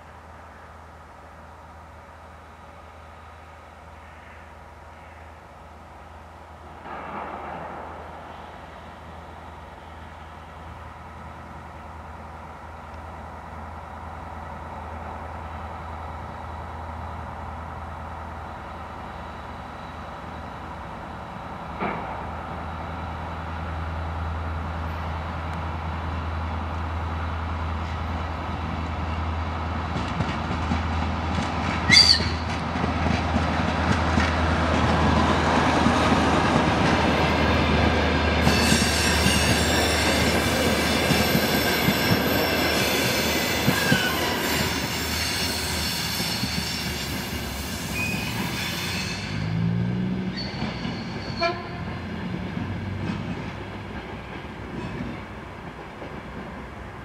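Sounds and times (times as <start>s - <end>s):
diesel train engine drone: 0.0s - 57.0s
high wheel squeal: 31.9s - 32.5s, 38.4s - 49.6s, 50.2s - 51.7s.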